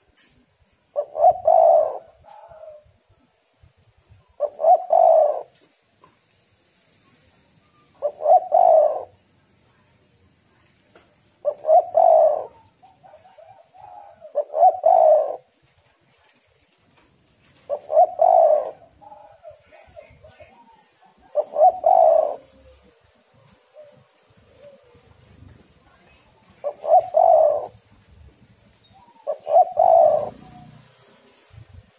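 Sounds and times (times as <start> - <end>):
dove cooing: 0.9 - 3.0, 4.2 - 5.6, 7.6 - 9.2, 11.4 - 15.6, 17.5 - 31.5.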